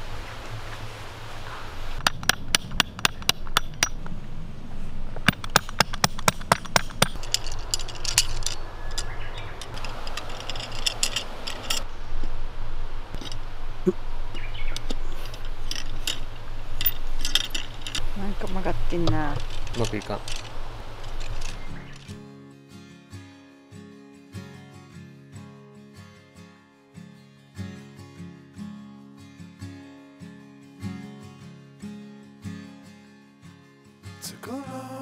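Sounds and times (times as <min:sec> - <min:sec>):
metal poles clicking: 0:02.0 - 0:04.2, 0:05.1 - 0:12.4, 0:13.1 - 0:13.5, 0:14.3 - 0:22.2
metal poles tapping and clinking: 0:02.0 - 0:04.2, 0:05.2 - 0:12.4, 0:13.1 - 0:13.5, 0:14.6 - 0:22.2.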